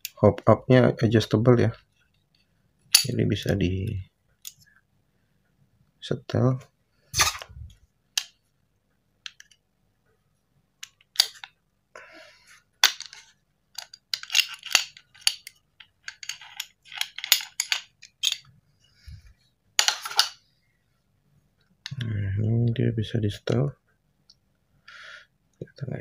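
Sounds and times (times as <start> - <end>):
metal pistol parts clicking and scraping: 10.8 - 11.6, 12.8 - 18.5, 19.8 - 20.4.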